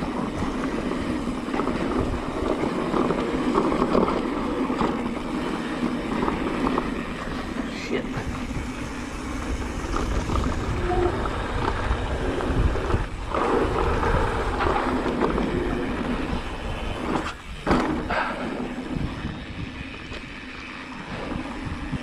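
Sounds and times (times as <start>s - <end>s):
bike tyres rolling on dirt: 0.0s - 22.0s
wind buffeting the microphone: 0.0s - 22.0s.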